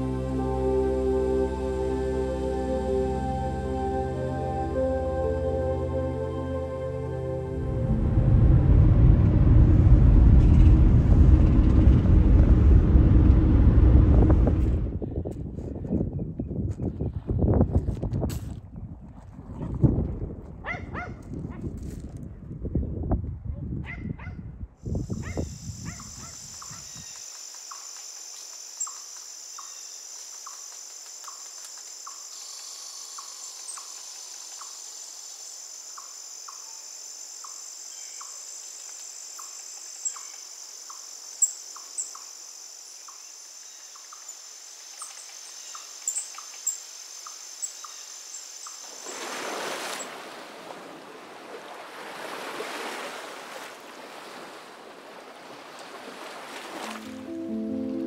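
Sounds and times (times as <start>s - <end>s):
broad rushing noise: 7.6s - 15.0s
insect buzz: 24.9s - 50.3s
soft ticking insect call: 25.0s - 50.2s
bird chirps: 25.2s - 36.8s, 37.4s - 48.9s.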